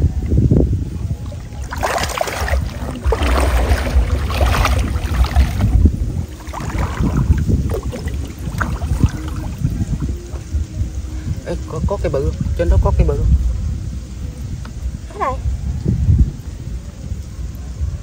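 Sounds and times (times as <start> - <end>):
water splashing: 0.0 - 13.1
wind rumble on microphone: 0.0 - 18.0.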